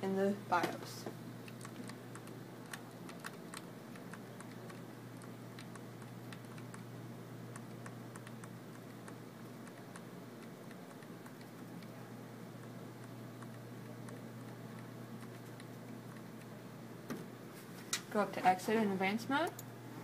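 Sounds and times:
computer humming: 0.0 - 20.0
computer keyboard keys tapping: 1.4 - 6.9, 7.5 - 12.0, 12.6 - 16.5.

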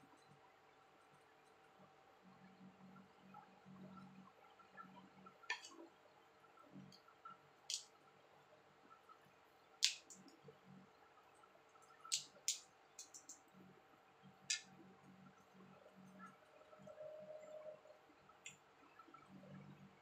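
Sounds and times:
crab shell cracking: 9.8 - 10.2, 12.1 - 13.4.

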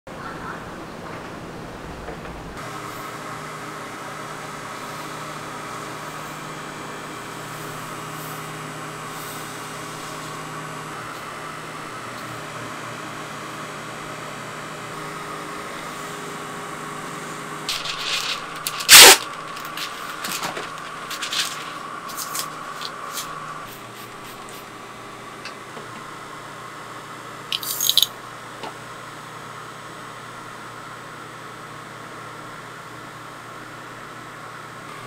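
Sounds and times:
machine motor humming: 17.7 - 24.6
paper rustling and clattering: 17.7 - 24.7.

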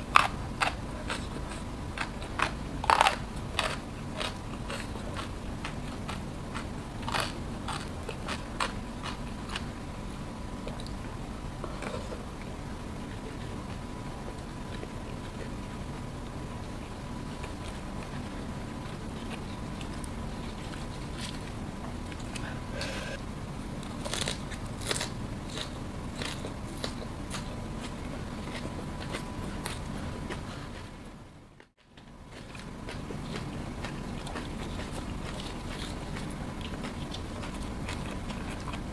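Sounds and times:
person chewing crunchy food: 0.0 - 11.0, 16.6 - 23.2, 23.8 - 38.9.

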